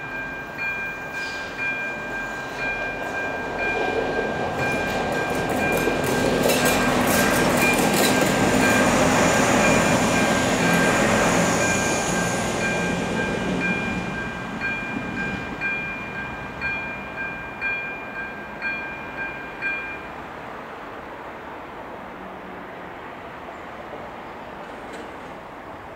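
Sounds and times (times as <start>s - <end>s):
level crossing warning bell: 0.0s - 20.2s
train passing: 0.0s - 25.9s.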